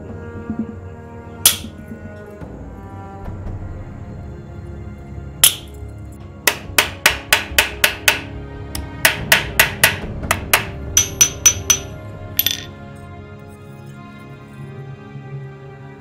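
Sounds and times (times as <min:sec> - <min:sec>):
background music: 0:00.0 - 0:16.0
hammer tapping steel punch: 0:01.5 - 0:01.8, 0:05.4 - 0:05.8, 0:06.5 - 0:12.7.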